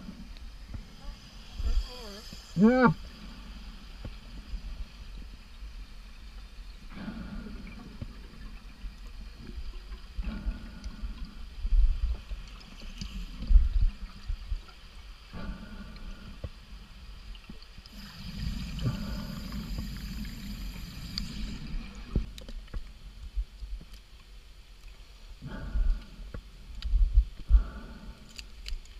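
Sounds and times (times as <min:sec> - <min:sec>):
low rumble of water: 0:00.0 - 0:28.9
diver breathing underwater: 0:06.9 - 0:08.4, 0:15.3 - 0:16.6, 0:17.9 - 0:22.3, 0:27.5 - 0:28.6.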